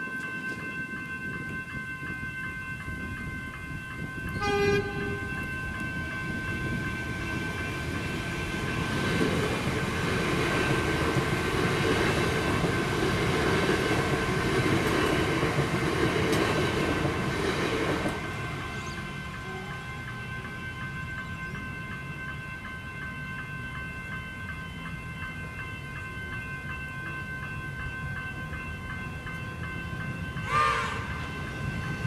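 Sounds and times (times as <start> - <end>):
level crossing bell ringing: 0.0 - 9.1
train wheels rumbling on rails: 0.0 - 32.0
train horn blast: 4.3 - 5.4, 18.6 - 20.0, 30.4 - 31.3.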